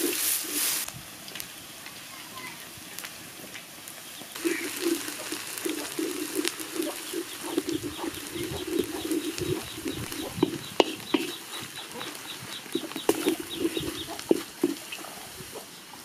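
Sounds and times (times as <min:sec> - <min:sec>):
low bird call: 0:04.2 - 0:15.8
high bird chirps: 0:06.7 - 0:15.0.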